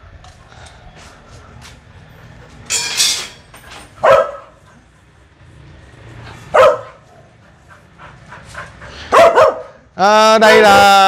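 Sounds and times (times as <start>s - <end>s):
dogs barking: 3.8s - 5.0s, 6.4s - 9.9s.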